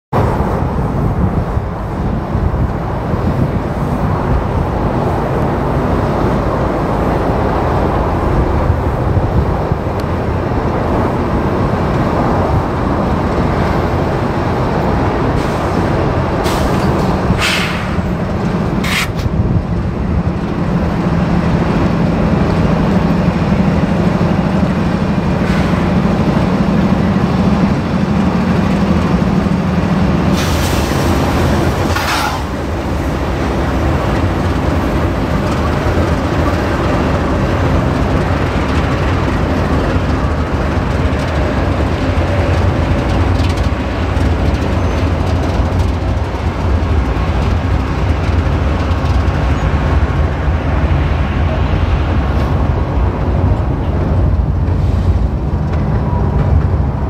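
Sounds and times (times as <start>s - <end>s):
diesel locomotive engines running: 0.1s - 57.0s
air hissing: 16.4s - 18.1s, 18.8s - 19.3s, 30.3s - 32.6s.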